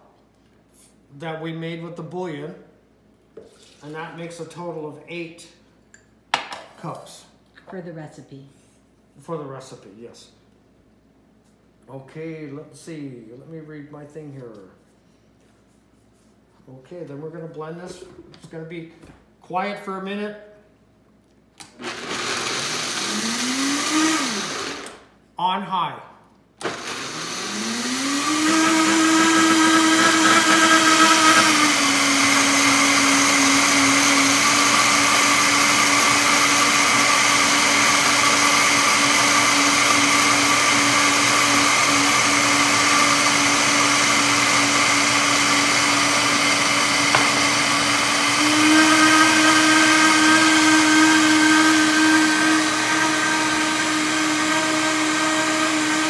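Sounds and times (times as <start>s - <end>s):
blender motor whining: 21.6s - 25.0s, 26.6s - 56.0s.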